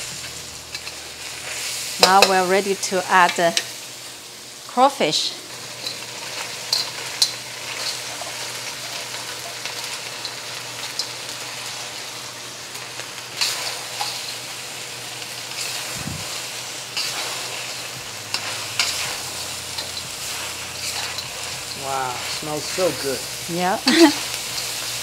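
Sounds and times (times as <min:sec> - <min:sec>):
crawfish sizzling in hot oil: 0:00.0 - 0:25.0
metal spatula scraping a wok: 0:00.3 - 0:02.3, 0:05.8 - 0:09.1, 0:17.0 - 0:25.0.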